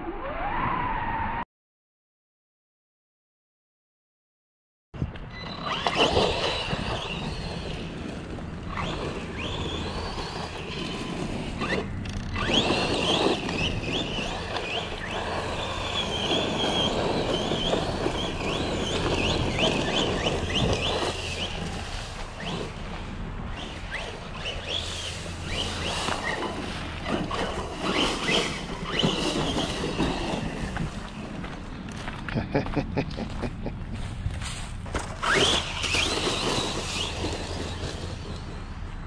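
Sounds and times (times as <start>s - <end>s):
rc car electric motor whining: 5.3s - 31.3s, 35.0s - 39.0s
rough running noise: 5.6s - 39.0s.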